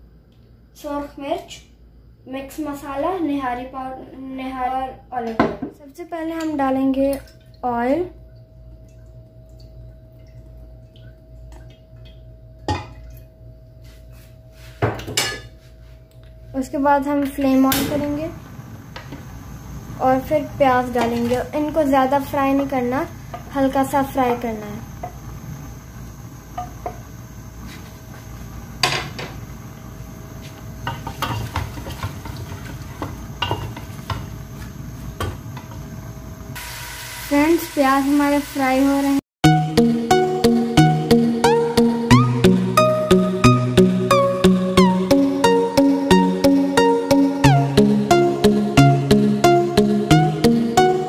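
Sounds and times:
steady hum: 0:00.0 - 0:36.7
oil trickling and dripping: 0:06.4 - 0:13.8
onions stirred in pot: 0:30.3 - 0:36.1.

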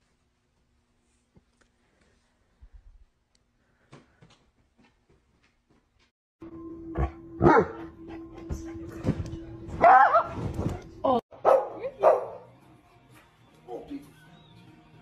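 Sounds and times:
dog barking: 0:07.4 - 0:07.9, 0:09.8 - 0:10.4, 0:11.4 - 0:12.5.

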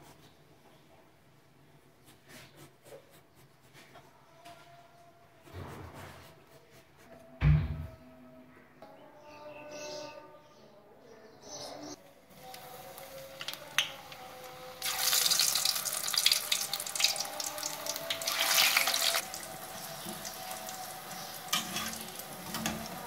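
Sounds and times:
dough frying in hot oil: 0:12.3 - 0:23.0.

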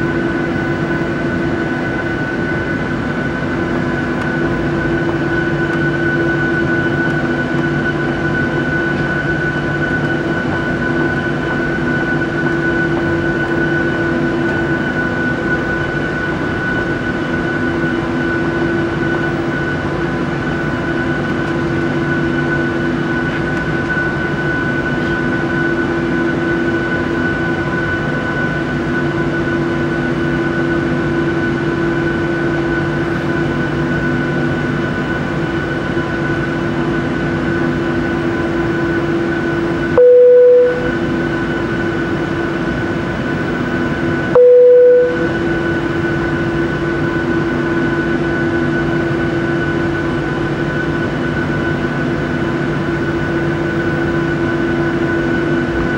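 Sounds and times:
jet engine cabin hum: 0:00.0 - 0:55.9
short loud beeps: 0:40.0 - 0:41.0, 0:44.4 - 0:45.4.

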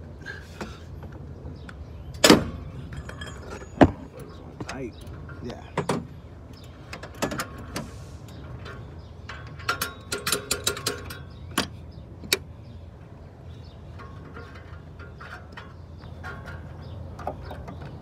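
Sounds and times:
metallic clicks and knocks: 0:01.6 - 0:12.5.

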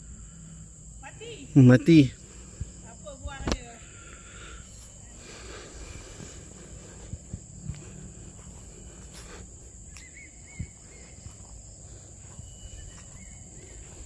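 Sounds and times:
insect hum: 0:00.0 - 0:14.0
faint bird chirps: 0:09.9 - 0:14.0.

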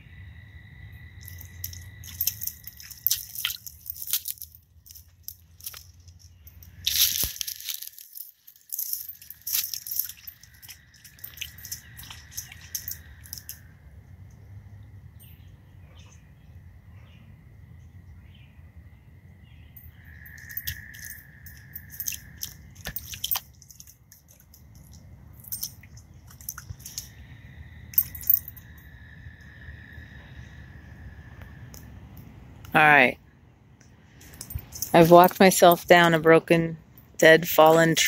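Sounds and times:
frogs trilling: 0:00.0 - 0:15.2, 0:19.2 - 0:32.1
branches snapping: 0:06.7 - 0:10.2
footsteps on dry leaves: 0:06.7 - 0:12.6.

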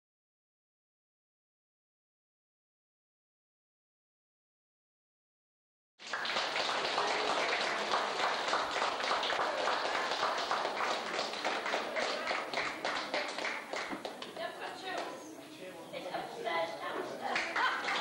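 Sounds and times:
people clapping: 0:06.0 - 0:15.3, 0:17.0 - 0:18.0
voices: 0:09.4 - 0:18.0.

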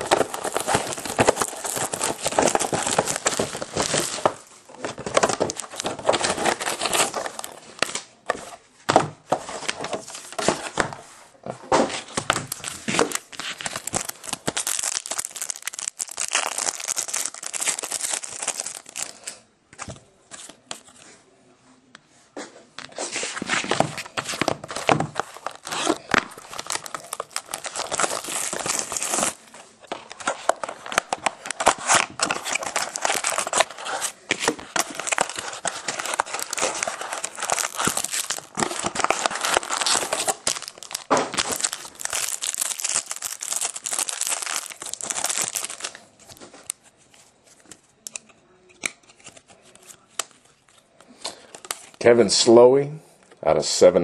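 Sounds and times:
foil wrappers crinkling and tearing: 0:00.0 - 0:08.1, 0:12.2 - 0:19.4, 0:23.3 - 0:46.8.

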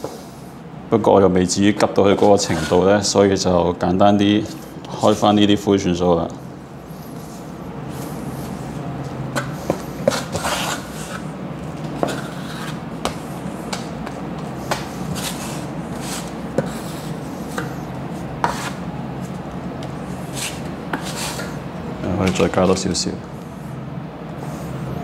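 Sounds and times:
putty knife scraping on board: 0:09.3 - 0:11.3, 0:12.0 - 0:19.4, 0:20.3 - 0:21.6.

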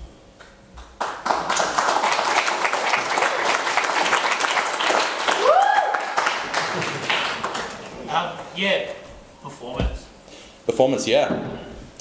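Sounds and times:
audience applauding: 0:00.9 - 0:08.0
rising cheer: 0:01.9 - 0:07.8.

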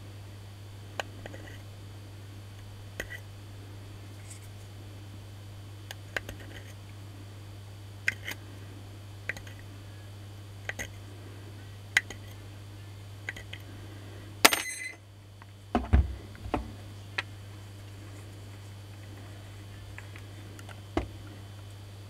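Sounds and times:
low hum: 0:00.0 - 0:22.0
metallic clink: 0:14.4 - 0:15.0.

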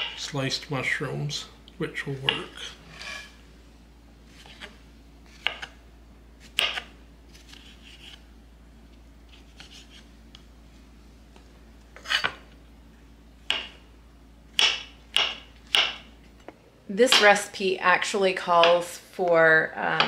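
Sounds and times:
knife striking cutting board: 0:00.0 - 0:00.2, 0:02.2 - 0:03.3, 0:06.5 - 0:06.9, 0:14.6 - 0:16.1
faint knife scraping: 0:02.6 - 0:03.4, 0:09.3 - 0:10.1, 0:12.0 - 0:12.4.

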